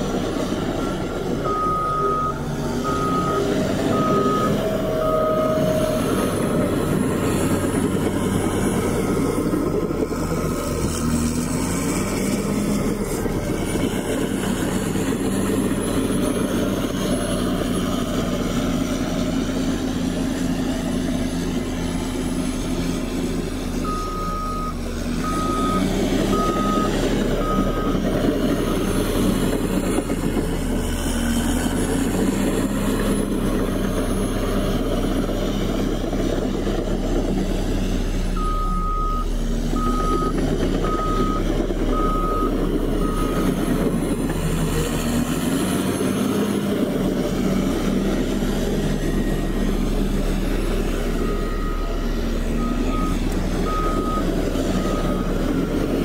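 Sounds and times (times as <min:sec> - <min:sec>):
heavy machinery engine running: 0:00.0 - 0:56.0
reversing alarm beeps: 0:00.9 - 0:05.8, 0:23.8 - 0:29.0, 0:38.4 - 0:43.8, 0:48.6 - 0:56.0.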